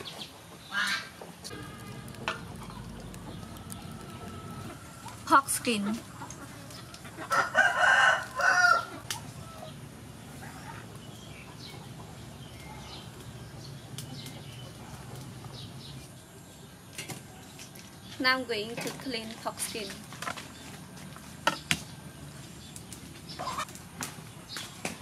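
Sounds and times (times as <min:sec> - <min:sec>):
rooster crowing: 0:06.6 - 0:09.8.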